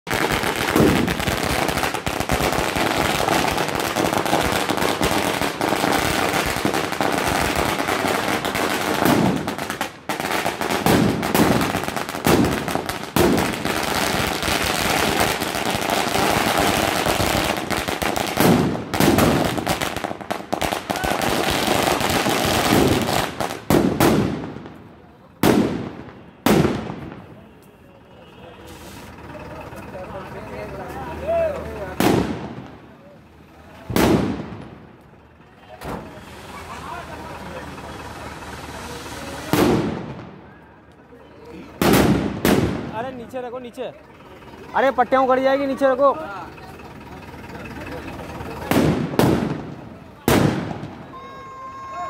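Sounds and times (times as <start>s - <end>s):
loud firecracker bangs: 0.0s - 27.6s, 31.9s - 32.9s, 33.8s - 34.9s, 38.5s - 40.5s, 41.8s - 43.4s, 48.4s - 51.9s
firecrackers crackling: 0.0s - 52.0s.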